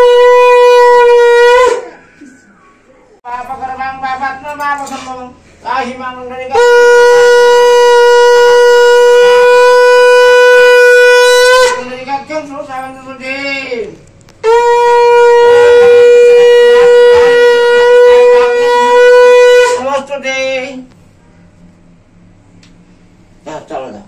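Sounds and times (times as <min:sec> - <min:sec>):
conch shell blasts: 0:06.5 - 0:12.0, 0:14.4 - 0:19.9.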